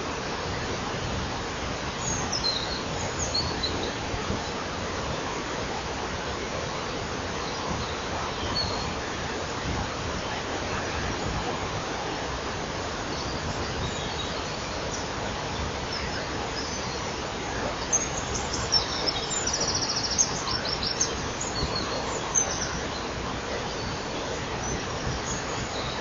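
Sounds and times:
steady background hiss: 0:00.0 - 0:26.0
songbird singing with trill: 0:02.0 - 0:04.0, 0:17.8 - 0:23.1.

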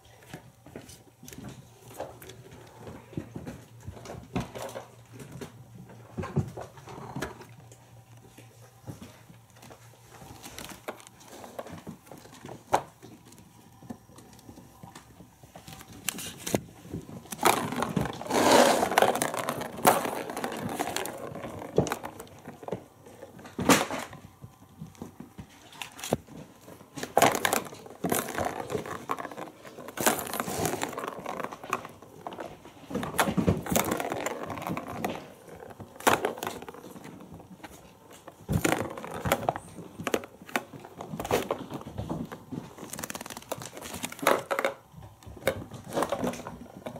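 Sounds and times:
ball rattling round a plastic track: 0:17.2 - 0:24.2, 0:26.9 - 0:46.9.

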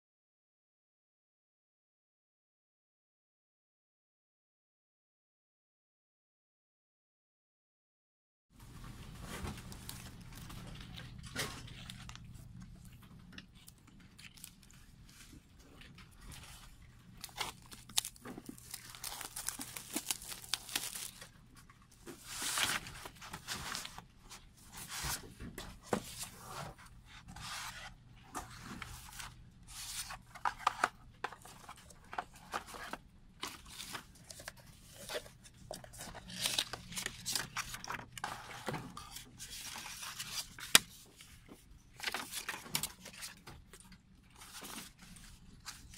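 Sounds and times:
cardboard and paper rustling: 0:08.6 - 0:45.9
shrink-wrap crinkling and tearing: 0:09.5 - 0:15.2, 0:15.8 - 0:24.0, 0:29.9 - 0:38.3, 0:42.0 - 0:43.8.

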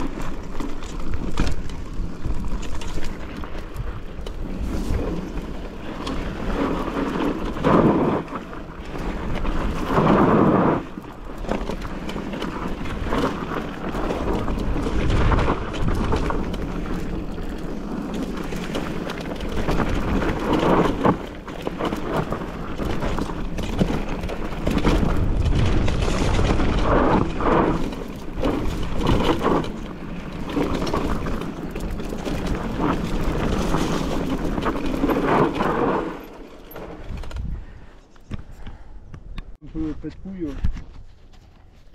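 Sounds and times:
wind rumble on microphone: 0:00.0 - 0:36.3, 0:37.0 - 0:41.9
bike clattering over ground: 0:00.0 - 0:37.5.

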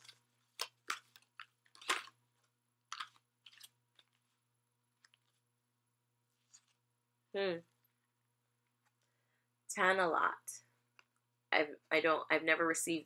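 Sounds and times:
cards being shuffled: 0:00.0 - 0:04.4.

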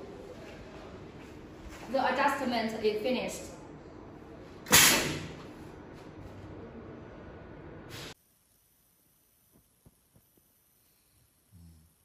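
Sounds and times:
workshop background hiss: 0:04.5 - 0:05.8, 0:07.8 - 0:12.0.

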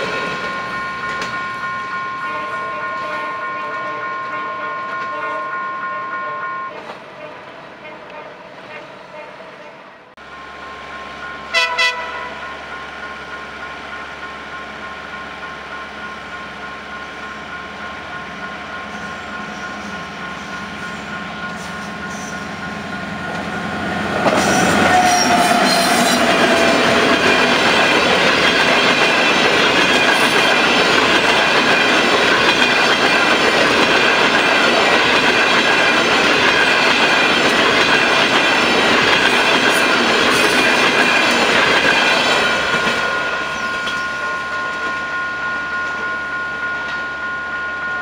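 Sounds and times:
two-tone crossing warning signal: 0:00.0 - 0:48.0
train wheels clattering over rails: 0:18.2 - 0:44.0.

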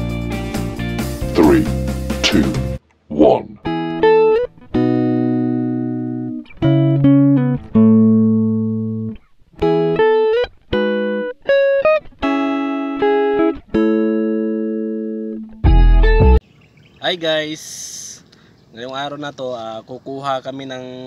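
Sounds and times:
plucked guitar music: 0:03.6 - 0:16.4.

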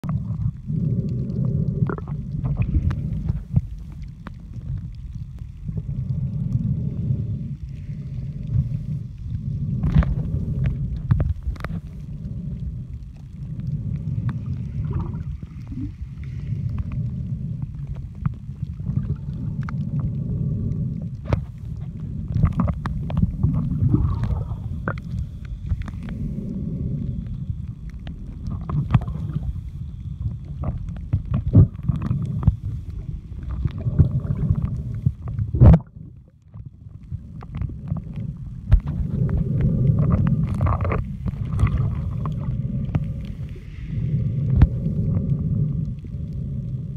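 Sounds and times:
underwater rumble of water: 0:00.0 - 0:46.9.

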